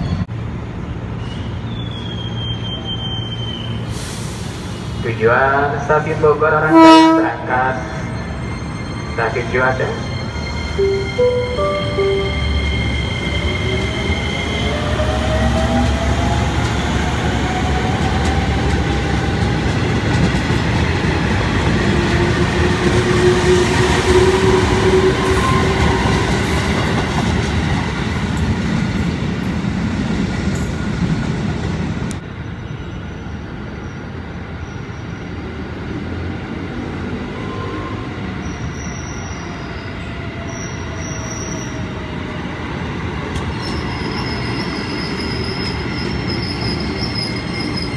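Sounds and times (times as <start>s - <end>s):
train wheels rumbling on rail: 0.0s - 47.9s
high-pitched squeals: 7.9s - 15.8s.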